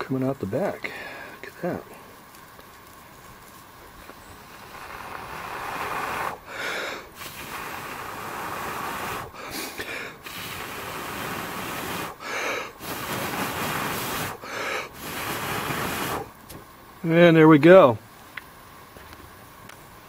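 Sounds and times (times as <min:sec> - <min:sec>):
person blowing on tinder: 0:04.4 - 0:16.4
person gasping for air: 0:05.6 - 0:10.7, 0:12.1 - 0:12.8, 0:14.3 - 0:15.0.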